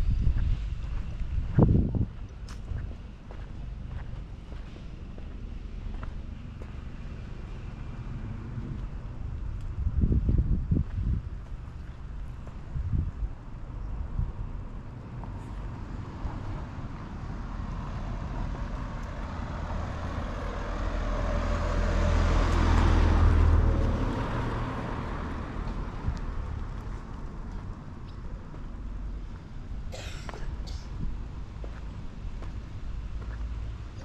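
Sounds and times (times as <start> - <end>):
vehicle passing by: 3.6 - 10.3, 15.0 - 28.0.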